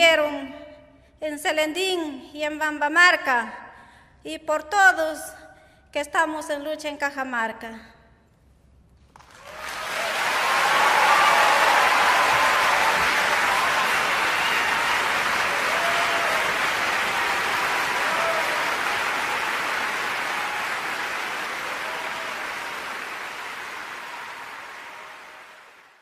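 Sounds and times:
audience applauding: 9.1 - 26.0.

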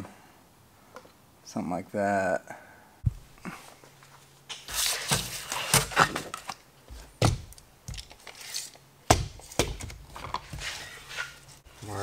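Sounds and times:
scraping and rustling on board: 4.6 - 7.1, 10.2 - 12.0.

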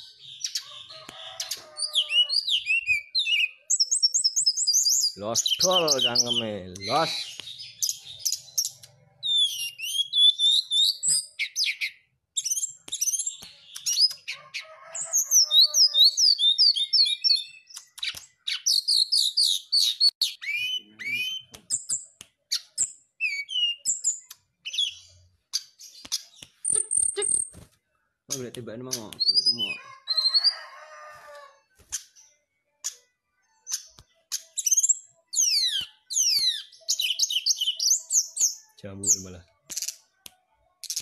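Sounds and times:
bird singing whistles and trills: 1.8 - 14.4, 15.2 - 27.5, 29.1 - 30.6, 33.7 - 39.3.

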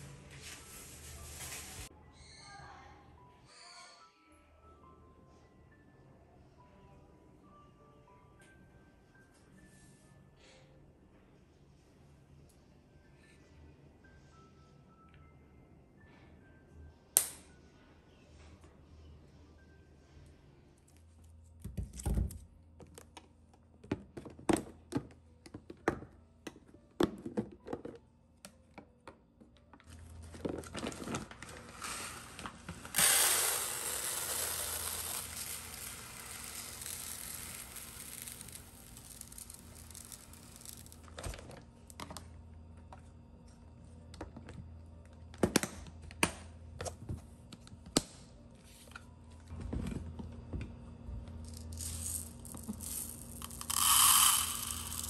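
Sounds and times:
rice grains pouring into container: 31.7 - 41.0, 51.7 - 55.0.

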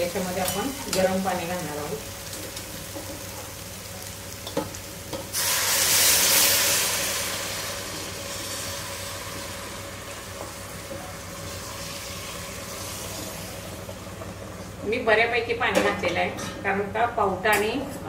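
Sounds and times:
loud sizzling hiss: 3.7 - 10.4.

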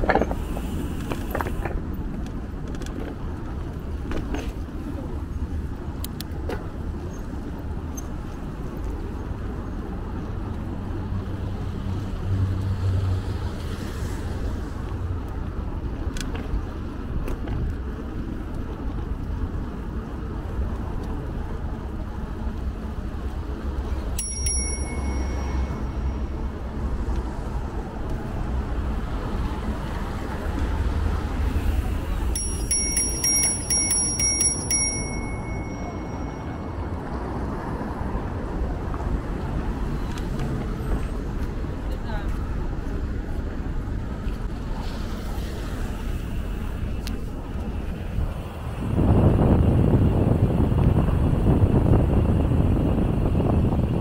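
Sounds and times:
low road and traffic rumble: 0.0 - 54.0
bicycle bell ringing: 24.1 - 26.6, 32.3 - 37.5.

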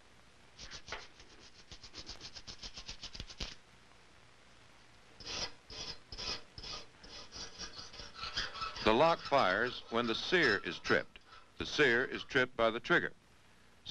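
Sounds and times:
hand tool scraping strokes: 0.6 - 3.6, 5.2 - 12.1
slow rasping strokes: 5.2 - 12.0.

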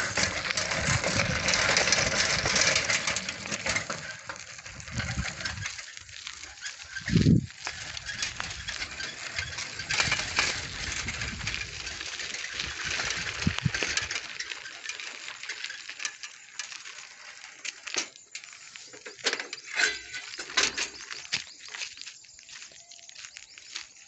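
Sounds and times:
bicycle tyres rumbling on dirt: 0.0 - 24.0
wind on microphone: 7.0 - 7.6.

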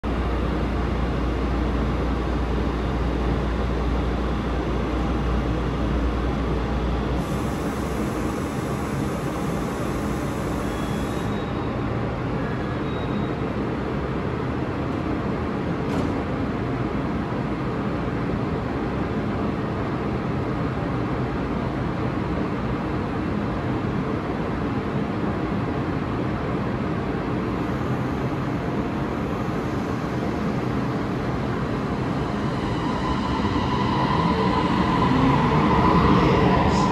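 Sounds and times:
hiss: 7.2 - 11.3
train equipment humming: 27.4 - 36.9.

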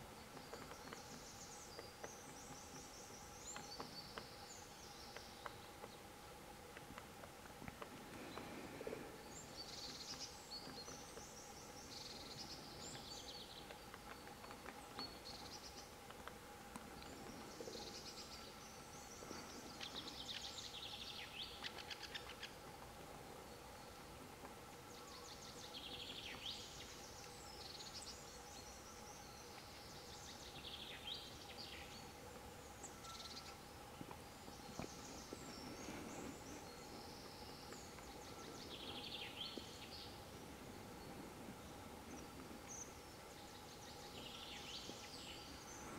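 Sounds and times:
faint steady hum: 0.0 - 45.9
songbirds trilling: 7.7 - 45.9.

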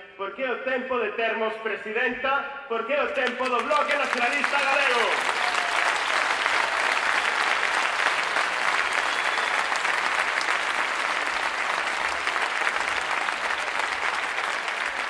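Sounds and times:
audience applauding: 3.2 - 15.0.

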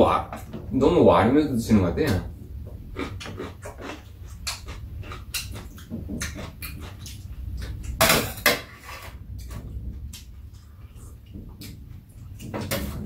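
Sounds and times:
chewing: 2.9 - 8.0.

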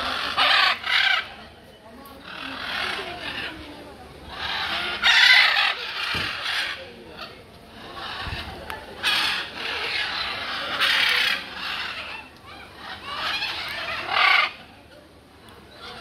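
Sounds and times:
macaw parrot squawking: 0.0 - 1.4, 4.3 - 6.9, 9.0 - 14.6.

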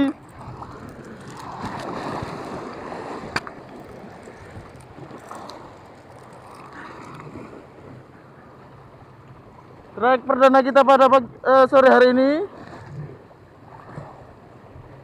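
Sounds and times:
wind on microphone: 0.0 - 5.9
waves splashing against rocks: 0.0 - 10.0.

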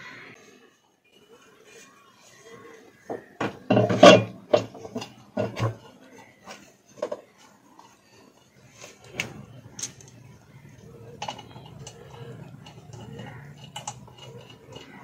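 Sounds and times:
metal clanks and knocks: 3.4 - 5.9, 9.2 - 15.0
metal ticks: 10.8 - 15.0.

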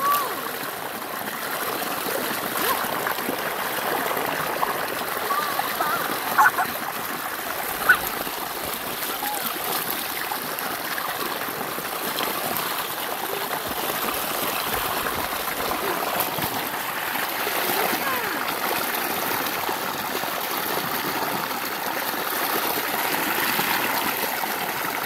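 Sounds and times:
stream running over stones: 0.0 - 25.0.

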